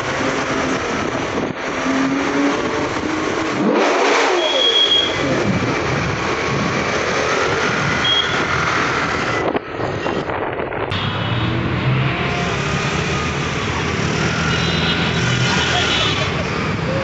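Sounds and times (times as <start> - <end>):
car and motorbike engines: 0.0 - 17.0
road noise: 0.0 - 17.0.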